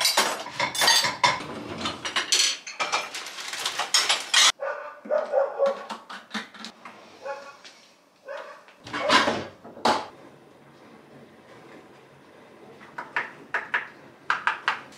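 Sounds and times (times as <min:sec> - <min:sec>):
plates and cutlery clattering: 0:00.0 - 0:04.6.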